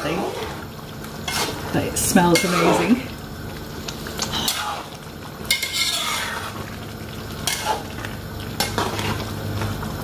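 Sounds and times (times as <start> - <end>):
liquid simmering hiss: 0.0 - 10.0
spatula scraping metal pot: 5.5 - 6.6.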